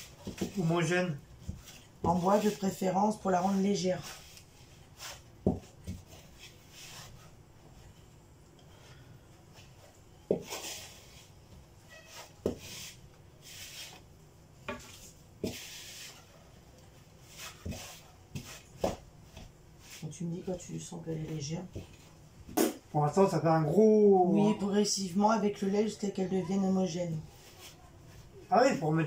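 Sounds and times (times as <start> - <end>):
wooden spoon stirring batter: 0.0 - 8.0, 9.5 - 22.4.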